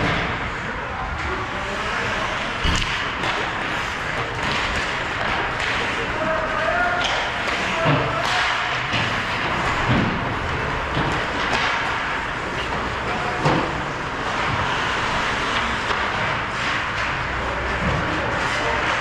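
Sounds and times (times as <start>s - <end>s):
ventilation hum: 0.0s - 19.0s
skates on ice: 1.1s - 19.0s
sharp knocks from hockey play: 2.6s - 6.1s, 6.9s - 12.2s.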